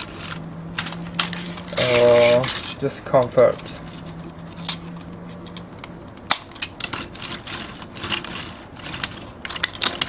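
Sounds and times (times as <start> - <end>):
plastic toy trains clicking: 0.0 - 3.7, 6.4 - 10.0.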